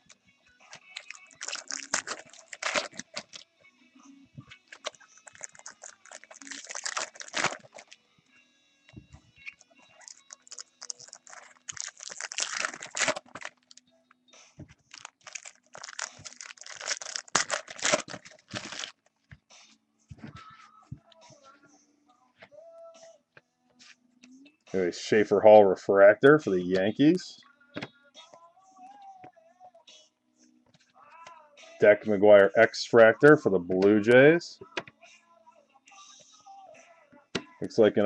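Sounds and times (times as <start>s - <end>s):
card pack wrappers crinkling: 0.7s - 3.4s, 4.7s - 8.0s, 10.0s - 13.8s, 14.9s - 19.0s.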